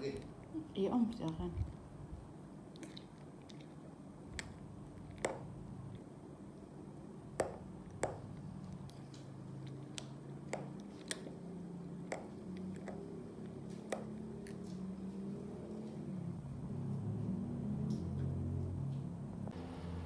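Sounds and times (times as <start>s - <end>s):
soft squishing of muesli: 2.6s - 6.7s, 8.2s - 16.4s.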